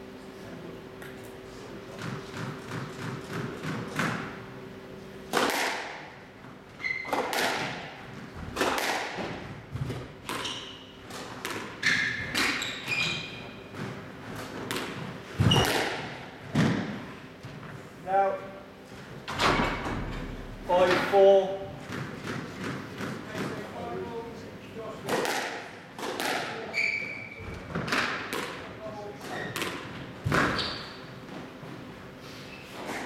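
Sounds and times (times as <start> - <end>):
squash ball smacks: 5.3 - 6.0, 7.1 - 7.9, 8.6 - 9.4, 14.7 - 17.0, 25.0 - 26.6, 29.6 - 30.6
shoes squeaking on court: 6.7 - 7.4, 9.8 - 16.0, 26.6 - 27.9, 29.2 - 33.0.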